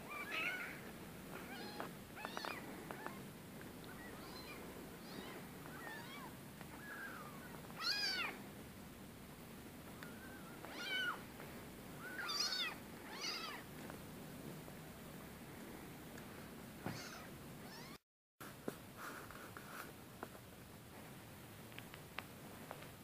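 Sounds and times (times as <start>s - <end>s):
kittens mewing: 0.0s - 8.4s, 10.0s - 11.2s, 12.0s - 13.6s, 16.8s - 18.0s.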